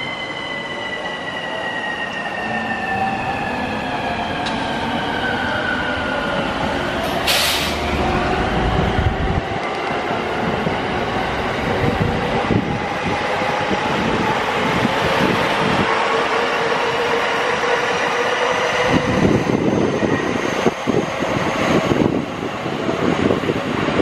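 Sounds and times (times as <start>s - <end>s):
high train whine: 0.0s - 24.0s
train rumbling on tracks: 0.0s - 24.0s
burst of hiss: 7.2s - 7.8s.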